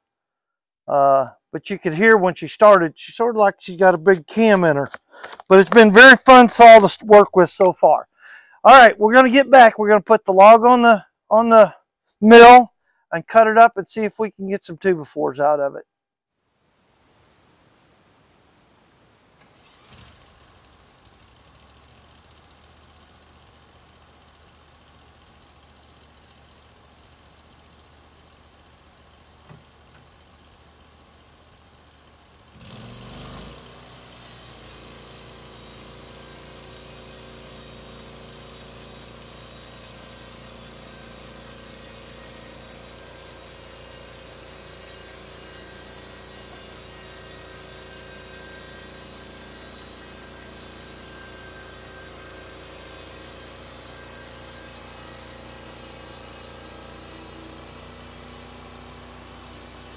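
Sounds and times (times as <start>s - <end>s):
gas engine starting and idling: 19.4s - 28.2s.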